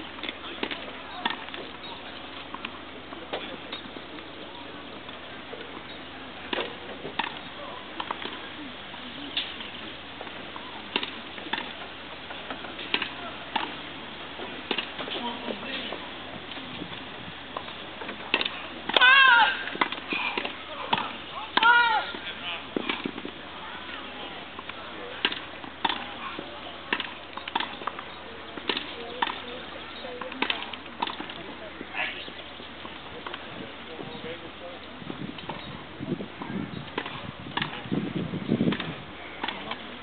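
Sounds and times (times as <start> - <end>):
tennis balls struck by rackets: 0.0 - 33.5, 36.4 - 37.9, 38.6 - 40.0
low outdoor murmur: 0.0 - 40.0
tennis ball racquet pops: 14.7 - 15.0.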